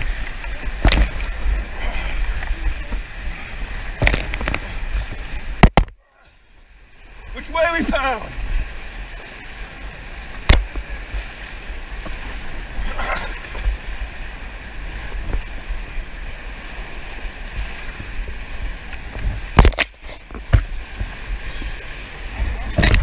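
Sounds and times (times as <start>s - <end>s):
whitewater rapids rushing: 0.0s - 23.0s
wind buffeting microphone: 8.3s - 23.0s.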